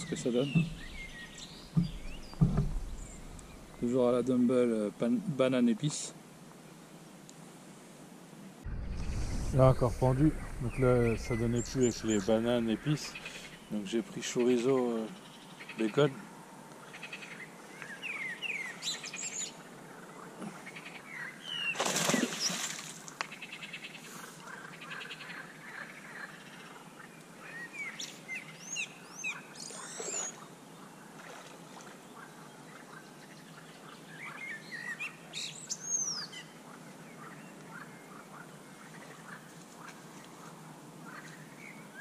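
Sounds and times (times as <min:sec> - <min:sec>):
small birds singing and chirping: 0:00.0 - 0:04.4, 0:10.0 - 0:16.2, 0:16.8 - 0:22.6, 0:23.3 - 0:30.9, 0:32.1 - 0:39.4
brief loud noise: 0:08.7 - 0:13.5.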